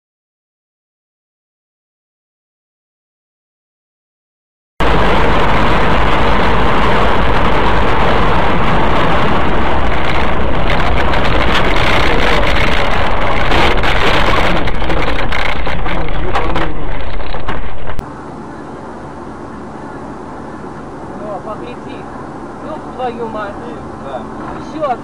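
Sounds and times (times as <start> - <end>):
car road and wind noise: 4.8 - 25.0.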